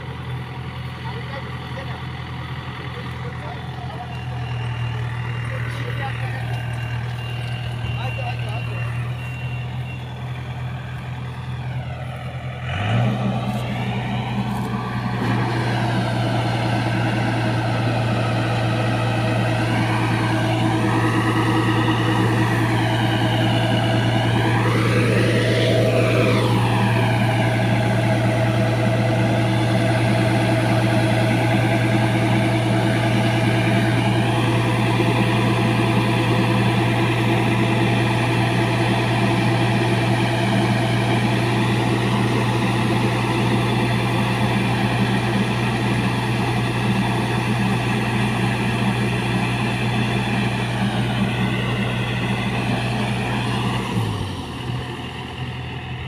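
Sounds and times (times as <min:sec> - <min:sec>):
diesel engine running: 0:00.0 - 0:56.0
auger discharging grain: 0:12.8 - 0:54.8.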